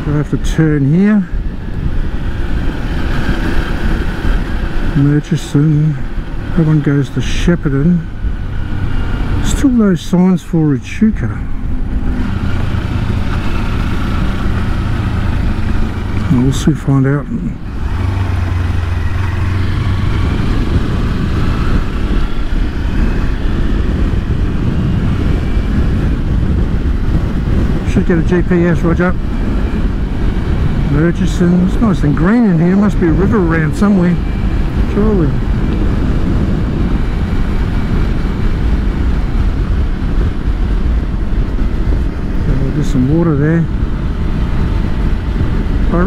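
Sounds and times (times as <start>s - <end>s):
wind rushing over microphone: 0.0s - 46.0s
motorcycle engine running: 11.2s - 46.0s.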